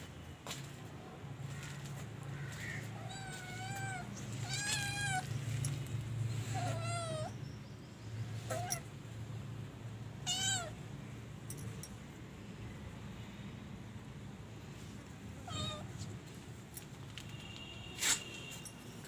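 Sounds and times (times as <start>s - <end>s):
kittens meowing: 2.6s - 5.4s, 6.4s - 7.4s, 8.4s - 8.9s, 10.2s - 10.8s, 15.4s - 16.0s.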